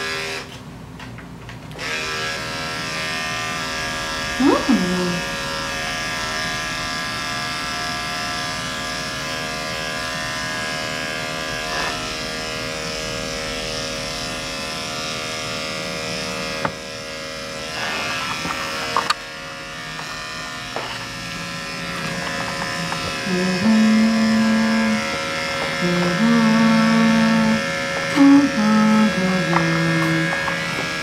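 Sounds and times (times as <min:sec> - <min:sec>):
electric clipper buzzing: 0:00.0 - 0:00.6, 0:01.7 - 0:31.0.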